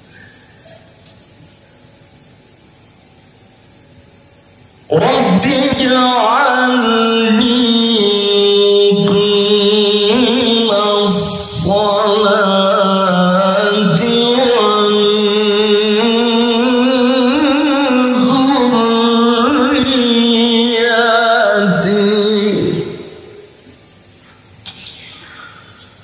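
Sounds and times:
man chanting recitation: 0:04.9 - 0:23.2.

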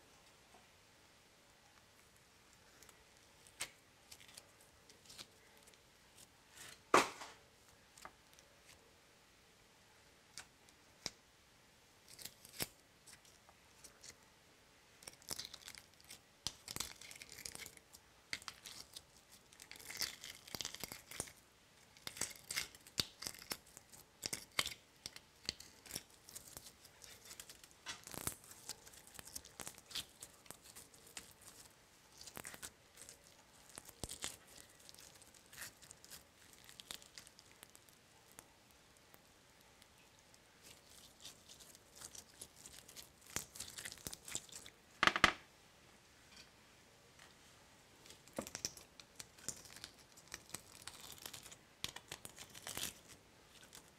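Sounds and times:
sharp slap: 0:06.9 - 0:07.3
slime crackling clicking and popping: 0:15.1 - 0:19.0, 0:22.0 - 0:38.4, 0:48.3 - 0:53.7.

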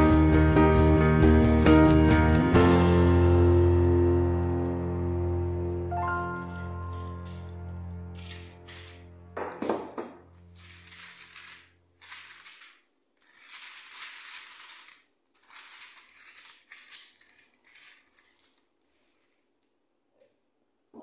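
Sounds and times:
baking paper rustling and crinkling: 0:05.8 - 0:19.5.

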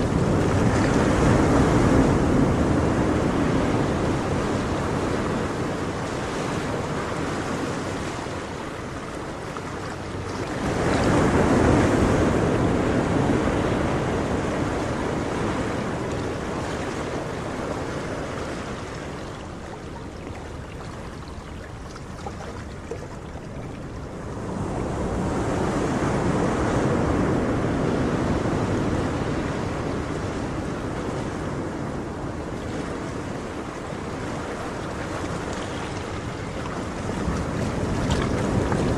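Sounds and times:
ocean surf washing on shore: 0:00.0 - 0:38.9.

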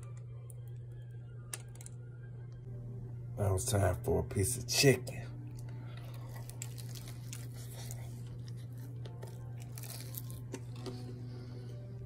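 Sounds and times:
steady low hum: 0:00.0 - 0:12.0
crunching fried chicken: 0:05.9 - 0:11.3.

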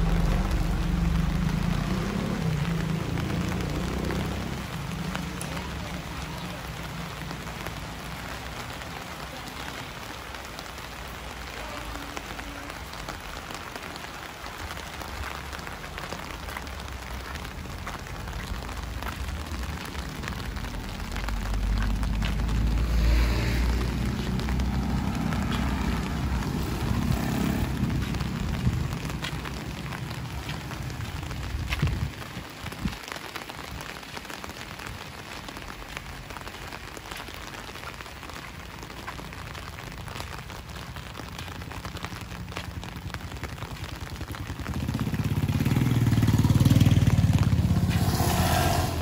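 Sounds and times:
steady rain falling: 0:00.0 - 0:49.0
low rumble: 0:47.0 - 0:49.0.

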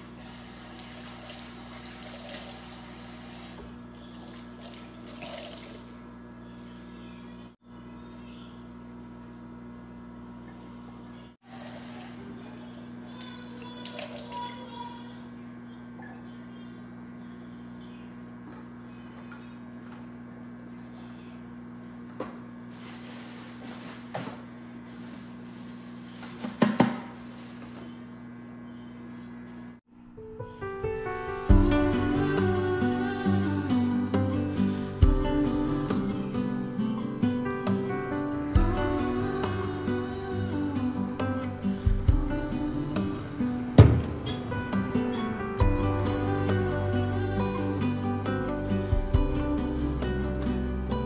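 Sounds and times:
constant low hum: 0:38.6 - 0:51.0.

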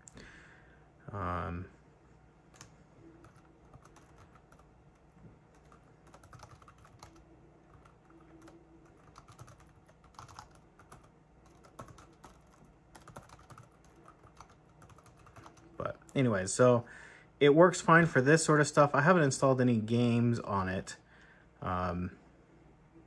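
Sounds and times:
laptop keyboard typing: 0:02.6 - 0:15.8.

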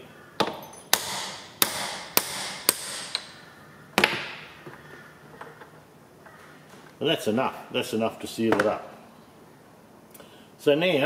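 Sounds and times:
hammer striking steel pin: 0:00.4 - 0:03.3.

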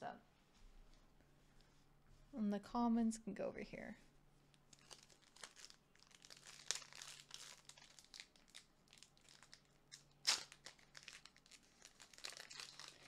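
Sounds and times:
cards and packaging crinkling: 0:04.7 - 0:13.0.

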